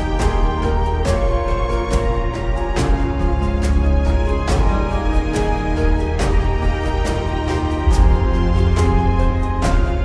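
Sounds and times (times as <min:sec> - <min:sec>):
sustained chords over deep bass: 0:07.6 - 0:10.0
drum hits: 0:07.9 - 0:09.2.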